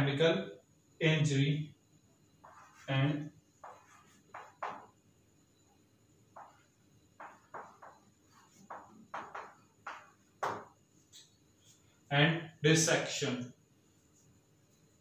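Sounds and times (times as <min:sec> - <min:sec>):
chalk scratching on blackboard: 0:02.4 - 0:04.9, 0:06.4 - 0:10.2.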